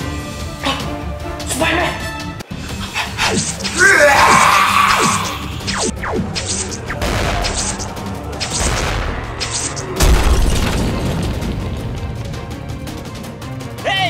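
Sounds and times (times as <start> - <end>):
action music with steady beat: 0.0 - 14.0
falling swooshes: 2.7 - 10.8
heavy low boom: 5.9 - 12.8.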